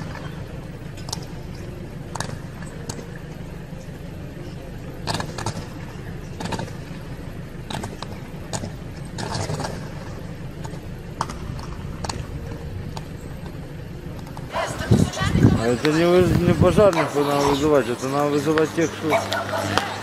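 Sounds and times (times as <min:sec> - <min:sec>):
low electrical hum: 0:00.0 - 0:20.0
electrical arc crackling snaps: 0:05.0 - 0:20.0.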